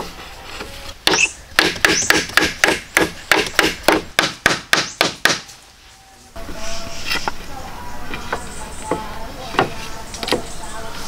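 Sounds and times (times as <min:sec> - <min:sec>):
hand tool striking wood: 0:01.0 - 0:05.6.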